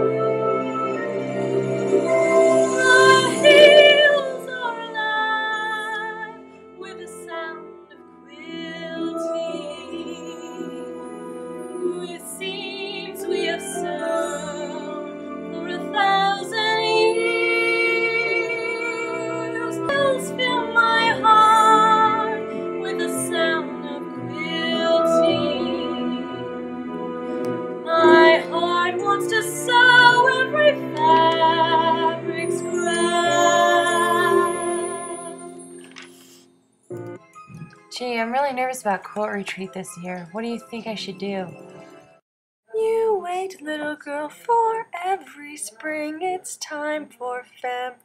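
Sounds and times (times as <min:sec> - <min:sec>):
musical accompaniment: 0:00.0 - 0:42.2
woman singing with vibrato: 0:02.0 - 0:07.6, 0:08.3 - 0:26.8, 0:27.8 - 0:35.7, 0:42.7 - 0:48.0.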